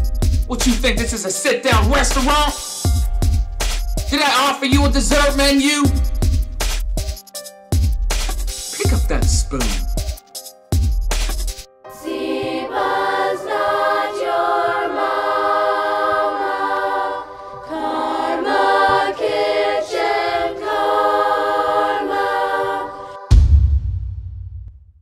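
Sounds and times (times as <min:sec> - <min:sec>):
choir singing held chords: 0:11.9 - 0:23.8
deep boom: 0:23.3 - 0:25.0.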